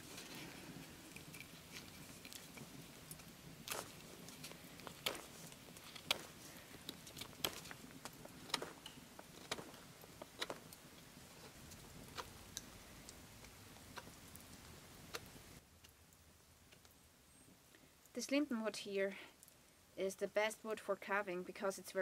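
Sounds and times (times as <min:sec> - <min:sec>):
knife carving wood: 0:01.0 - 0:15.4.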